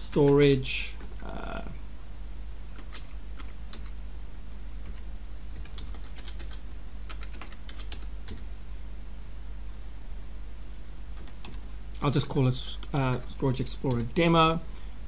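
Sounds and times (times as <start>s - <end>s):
computer keyboard typing: 2.7s - 4.0s, 4.8s - 8.5s, 11.2s - 11.6s, 12.8s - 14.2s.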